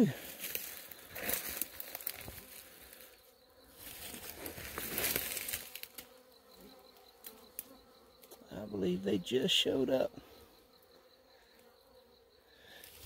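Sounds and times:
bees buzzing: 0.0 - 13.0.

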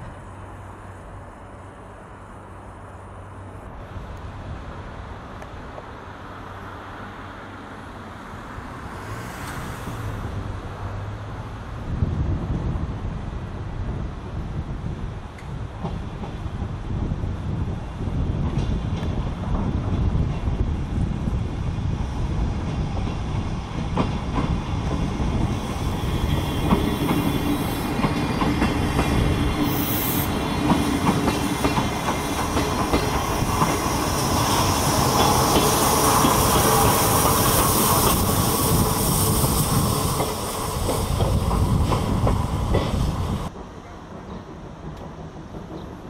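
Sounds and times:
train wheels clacking over rail joints: 22.6 - 46.0
high wheel squeal: 25.5 - 28.0.

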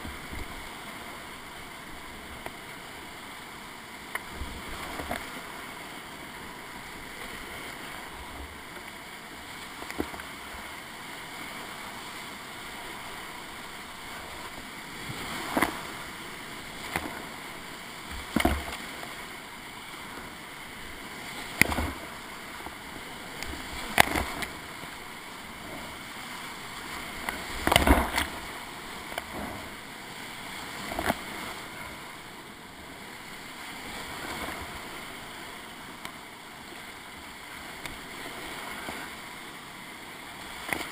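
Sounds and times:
paddle splashing waves: 0.0 - 40.9
river rapids rushing: 0.0 - 40.9.

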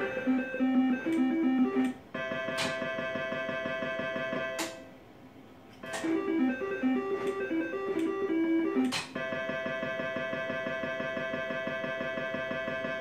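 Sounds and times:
slot machine stepping beeps: 0.0 - 4.8, 5.8 - 13.0
held electronic chord: 5.8 - 13.0.

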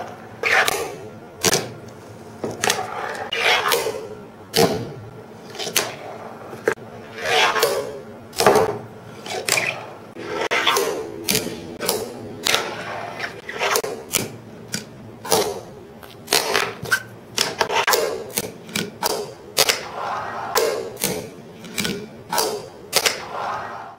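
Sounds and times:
fingerboard wheels rolling and scraping: 0.0 - 1.0, 1.9 - 4.0, 5.4 - 14.1, 16.3 - 18.2, 18.9 - 21.0, 22.9 - 23.9.

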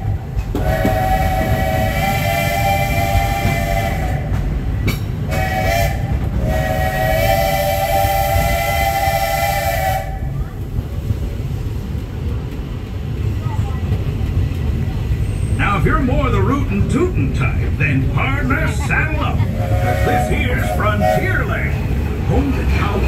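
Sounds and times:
train low rumble: 0.0 - 23.0
steam locomotive chime whistle: 0.6 - 4.4, 5.3 - 10.4, 19.5 - 21.6.

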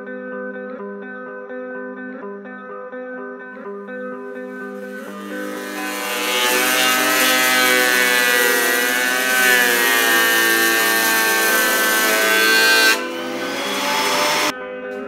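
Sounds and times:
thickness planer cutting board: 4.5 - 14.5.

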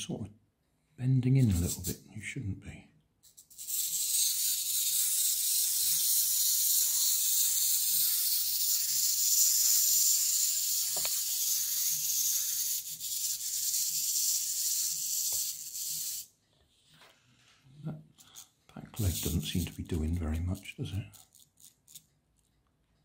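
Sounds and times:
clockwork toy whirring: 1.4 - 2.0, 3.2 - 16.3, 18.2 - 22.1.

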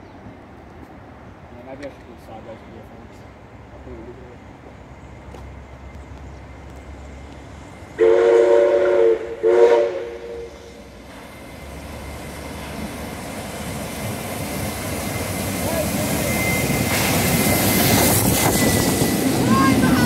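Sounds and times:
train rumble: 0.2 - 20.0
steam locomotive whistle: 8.0 - 10.8.

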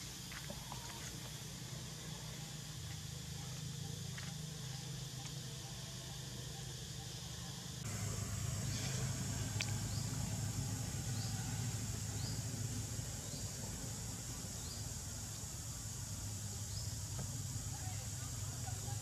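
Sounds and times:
high-pitched insect drone: 0.0 - 19.0
low steady hum: 7.8 - 18.9.

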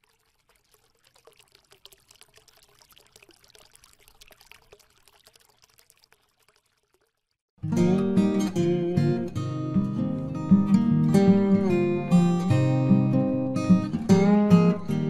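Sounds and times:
water pouring and trickling: 0.0 - 7.5
acoustic guitar strumming: 7.6 - 15.0.

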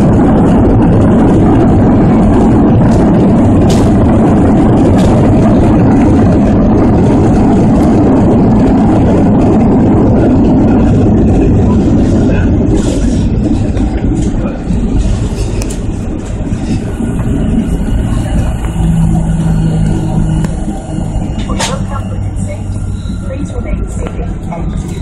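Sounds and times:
jet engine roar in cabin: 0.0 - 25.0
runway rumble: 0.0 - 25.0.

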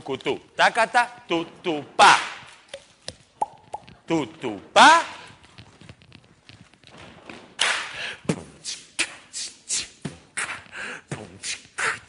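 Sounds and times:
hissed vocal percussion beats: 8.2 - 12.0.

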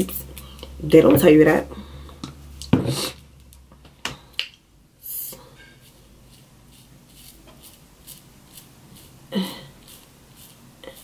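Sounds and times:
soft brush strokes: 5.0 - 11.0.

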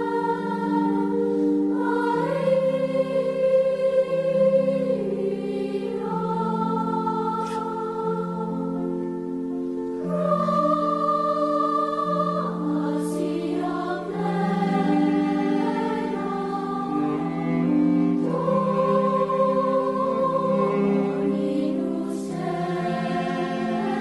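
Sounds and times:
choir singing held chords: 0.0 - 24.0.

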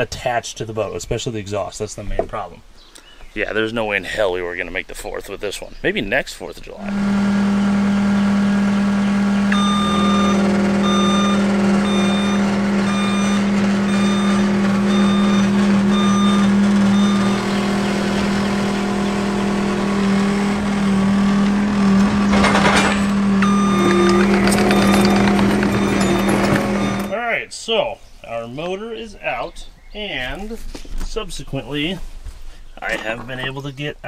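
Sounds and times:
vehicle engine running: 6.9 - 27.2
reversing alarm beeping: 9.2 - 20.5, 21.2 - 27.2.

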